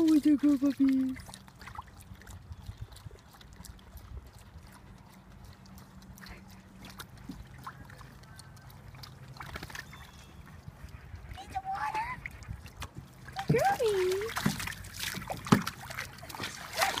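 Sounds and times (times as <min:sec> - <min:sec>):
water sloshing: 0:00.0 - 0:17.0.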